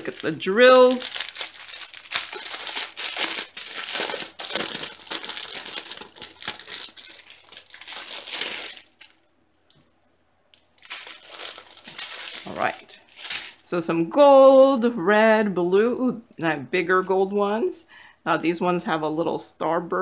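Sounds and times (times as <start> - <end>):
plastic packaging crinkling: 0.0 - 9.9, 10.5 - 13.7.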